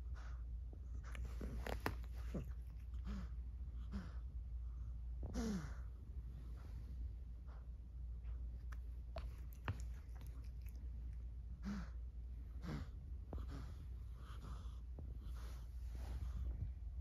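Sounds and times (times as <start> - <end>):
cat breathing noisily: 5.3 - 17.0.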